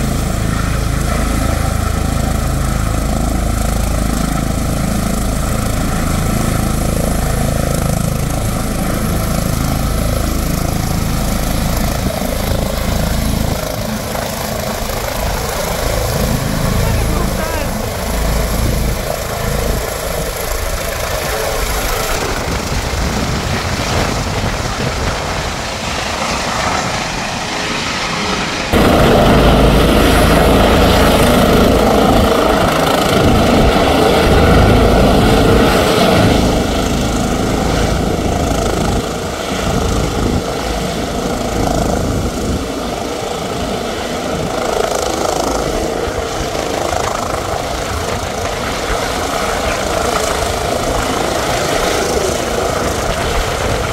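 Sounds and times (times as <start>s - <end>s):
helicopter hovering: 0.0s - 53.9s.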